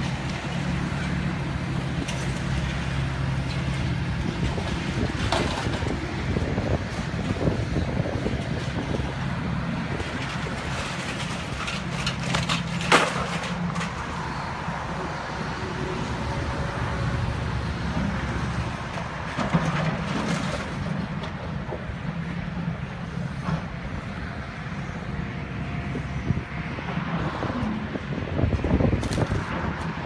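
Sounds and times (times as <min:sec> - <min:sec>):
excavator diesel engine running: 0:00.0 - 0:30.0
crashes of falling debris: 0:10.0 - 0:14.0.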